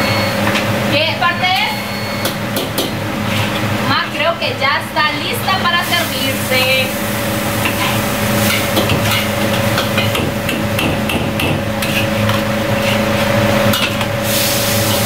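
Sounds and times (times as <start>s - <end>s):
metal utensils scraping a wok: 3.2s - 4.1s, 7.6s - 10.2s, 11.8s - 15.0s.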